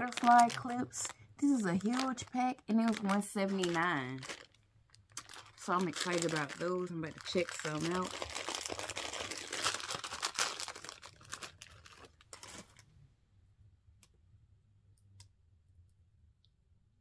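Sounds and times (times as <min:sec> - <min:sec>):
packaging crinkling and tearing: 0:00.0 - 0:12.8.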